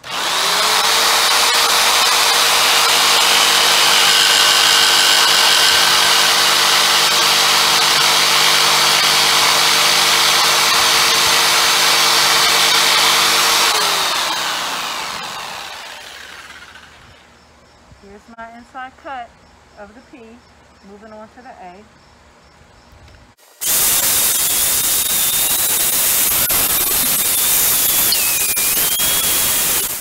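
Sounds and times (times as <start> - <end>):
jigsaw cutting wood: 0.0 - 17.2, 23.6 - 30.0.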